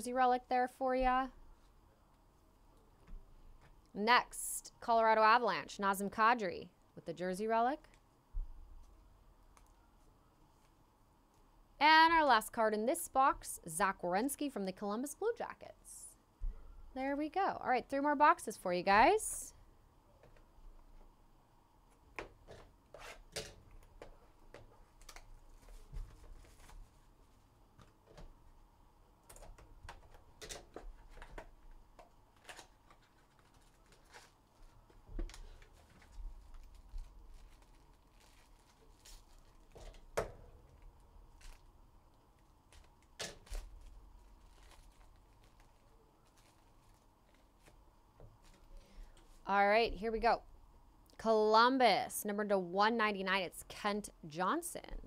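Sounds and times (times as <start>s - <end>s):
foil packs rustling: 25.0s - 27.4s, 32.3s - 41.7s, 42.4s - 49.4s.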